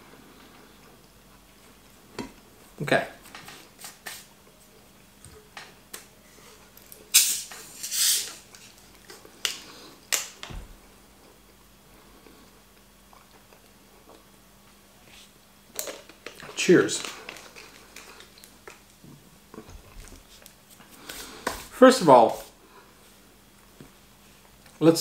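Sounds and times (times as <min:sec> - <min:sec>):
bottle cap hissing open: 0:07.1 - 0:08.4.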